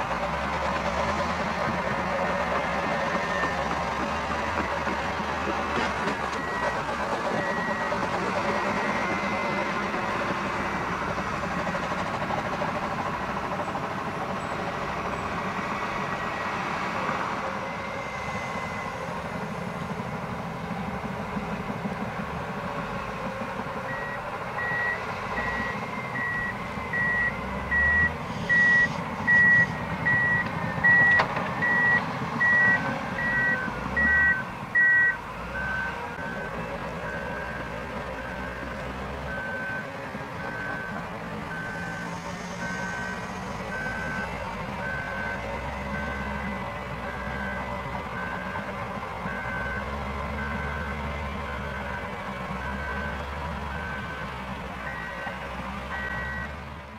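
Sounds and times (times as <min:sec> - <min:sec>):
diesel engine running under load: 0:00.0 - 0:56.9
reversing alarm beeping: 0:06.2 - 0:10.4, 0:23.8 - 0:56.6
lower-pitched reversing alarm: 0:06.3 - 0:10.4, 0:23.8 - 0:56.6.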